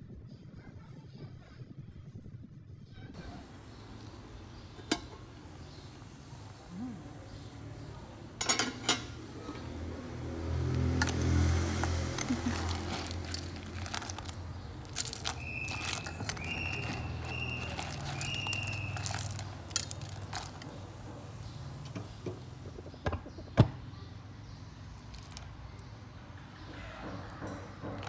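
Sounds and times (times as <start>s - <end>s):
ladle stirring clams in water: 11.0s - 20.8s
clam shells clicking: 11.8s - 20.7s.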